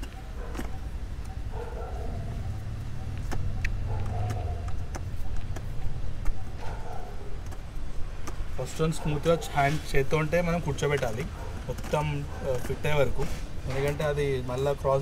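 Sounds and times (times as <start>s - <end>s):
sharp clicks: 3.1s - 6.5s.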